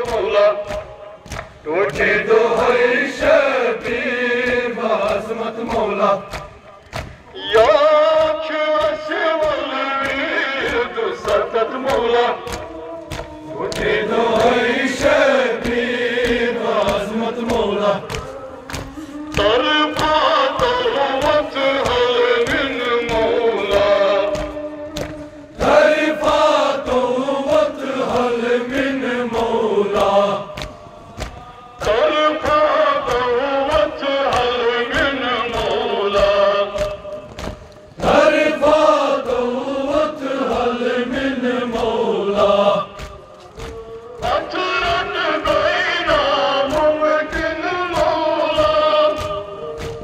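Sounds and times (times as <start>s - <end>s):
chest-beating slaps: 0.0s - 50.0s
men chanting over microphone: 0.0s - 50.0s.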